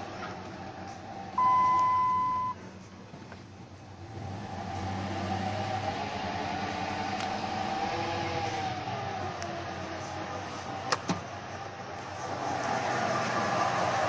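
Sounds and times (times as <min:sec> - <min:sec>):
truck engine humming: 0:00.0 - 0:14.0
electronic chime beep: 0:01.4 - 0:02.6.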